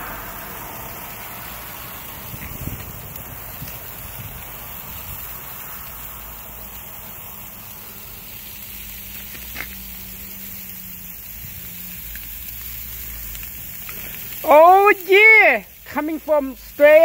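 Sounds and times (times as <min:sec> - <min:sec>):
low rumble: 0:00.0 - 0:08.6
meat sizzling on grill: 0:00.0 - 0:17.0.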